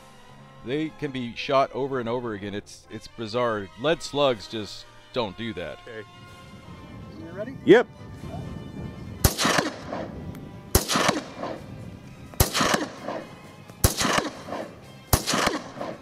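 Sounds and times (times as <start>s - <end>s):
shotgun shots: 9.2s - 16.0s.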